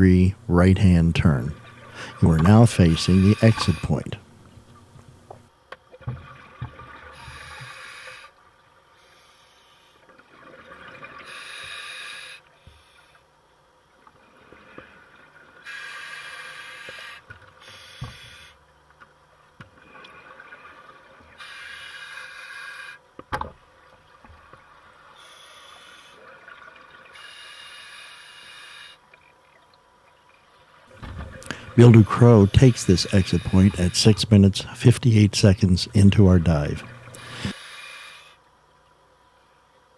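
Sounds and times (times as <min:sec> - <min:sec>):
diver breathing through regulator: 0:01.8 - 0:04.2, 0:07.1 - 0:08.3, 0:11.2 - 0:13.2, 0:15.6 - 0:18.6, 0:21.4 - 0:23.0, 0:27.1 - 0:29.0, 0:31.3 - 0:34.8, 0:36.7 - 0:38.4.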